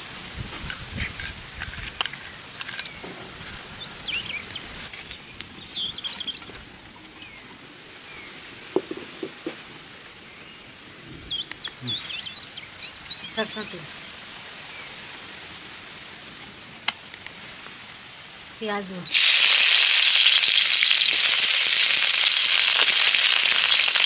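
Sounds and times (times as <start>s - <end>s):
birds chirping: 2.0s - 13.9s.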